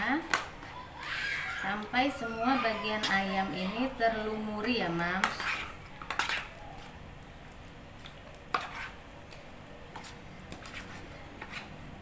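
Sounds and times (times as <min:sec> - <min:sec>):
spoon stirring in plastic container: 0:02.8 - 0:12.0
spoon clicking and scraping: 0:05.1 - 0:06.9, 0:08.0 - 0:11.8.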